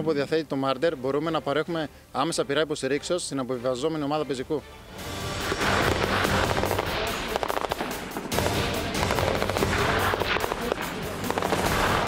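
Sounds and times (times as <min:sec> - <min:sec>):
background music: 0:00.0 - 0:12.0
automatic gunfire: 0:05.4 - 0:12.0.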